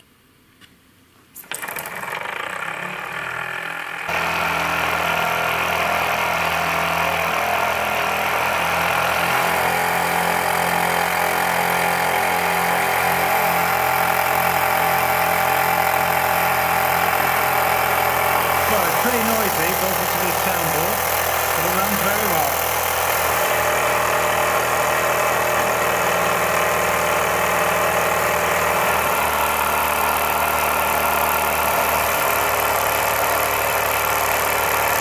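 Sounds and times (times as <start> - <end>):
model steam engine hissing: 4.2 - 26.9.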